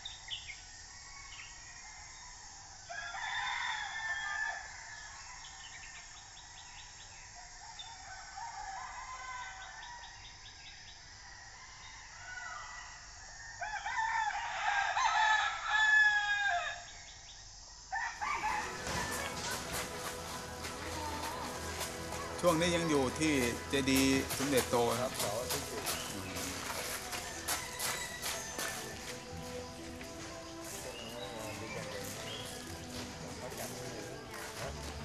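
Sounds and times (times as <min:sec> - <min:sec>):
rooster crowing: 0:01.0 - 0:05.8, 0:07.6 - 0:10.2, 0:11.2 - 0:16.9, 0:17.9 - 0:34.5
chicken and bird calls: 0:18.0 - 0:35.0
music: 0:18.4 - 0:35.0
voices: 0:18.5 - 0:35.0
fast chirping: 0:18.6 - 0:34.3.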